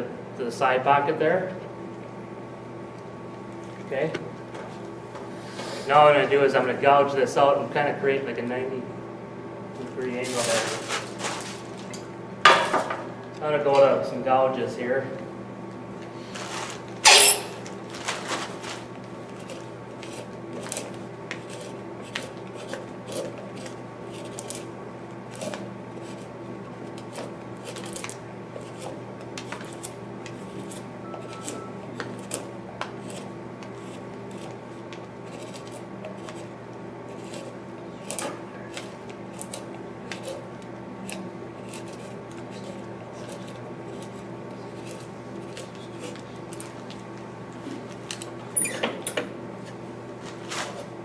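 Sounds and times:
steady low hum: 0.0s - 51.0s
hand gouge cutting wood: 19.3s - 24.6s, 32.2s - 46.8s.

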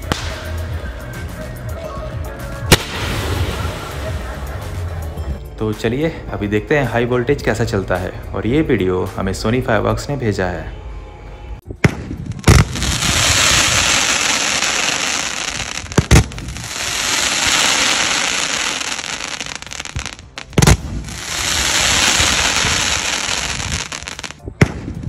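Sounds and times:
firework crackling: 0.0s - 0.8s, 2.7s - 5.0s, 12.0s - 25.0s
firework launch bangs: 2.7s - 4.4s, 11.8s - 25.0s.

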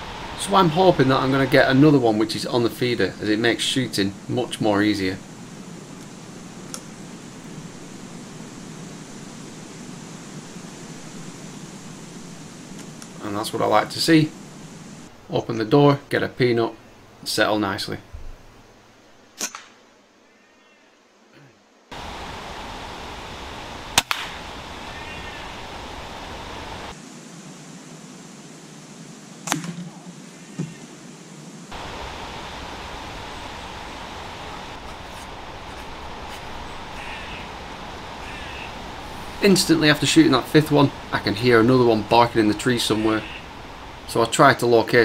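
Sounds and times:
woodland background hiss: 0.0s - 45.0s
faint click: 6.7s - 6.9s
air rifle shot cracks: 19.4s - 19.8s, 24.0s - 24.4s, 29.4s - 29.9s.

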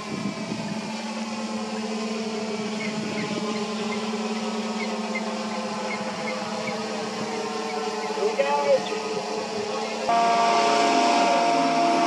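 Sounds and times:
drone propellers humming: 0.0s - 12.0s.

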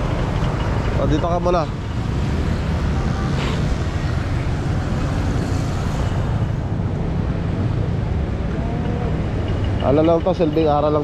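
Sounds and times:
low rumble of street traffic: 0.0s - 11.0s.

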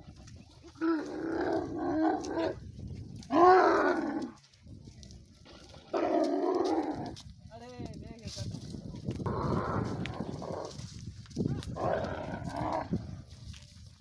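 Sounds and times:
camels bellowing: 0.6s - 4.4s, 5.4s - 7.2s, 9.2s - 13.1s.

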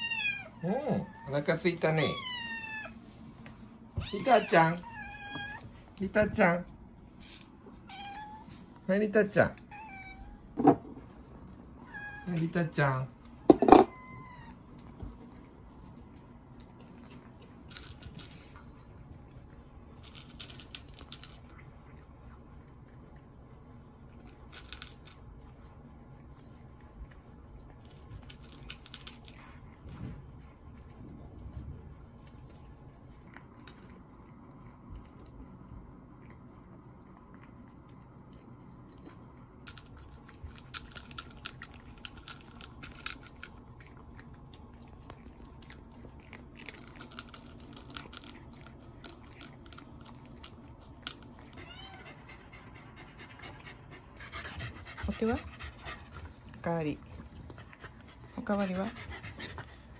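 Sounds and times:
cat meowing: 4.0s - 5.7s, 7.8s - 8.5s, 9.7s - 10.5s, 51.5s - 52.2s
cats crunching dry kibble: 11.0s - 52.1s, 55.1s - 58.6s.

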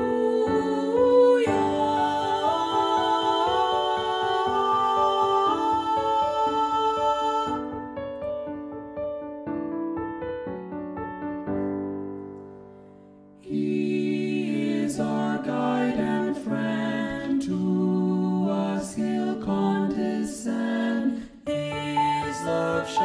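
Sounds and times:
choir singing a hymn in harmony: 0.0s - 8.0s, 13.4s - 23.0s.

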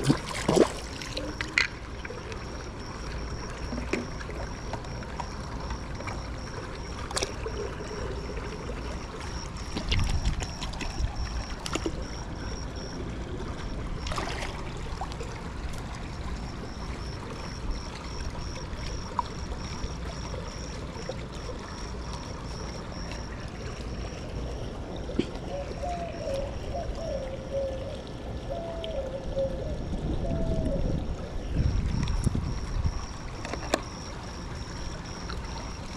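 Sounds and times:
knocks and splashes: 0.0s - 8.0s, 8.7s - 12.3s, 13.0s - 19.4s, 25.1s - 25.5s
pool water sloshing: 0.0s - 30.2s, 30.8s - 35.9s.

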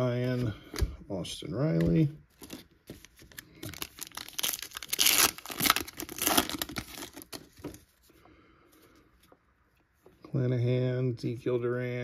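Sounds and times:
foil wrapper tearing and crinkling: 2.4s - 7.4s.

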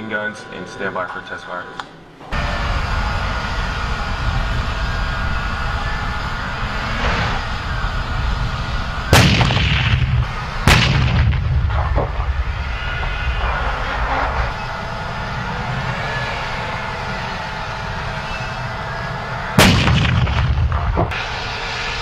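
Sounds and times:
tank engine rumble with turbine whine: 0.0s - 22.0s
heavy gun shots with echo: 9.1s - 12.3s, 19.6s - 21.2s.

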